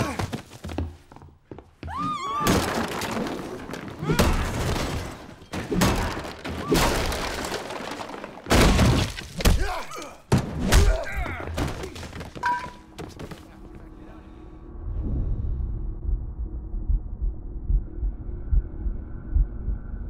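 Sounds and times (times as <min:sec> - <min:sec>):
things breaking and shattering: 0:02.3 - 0:12.8.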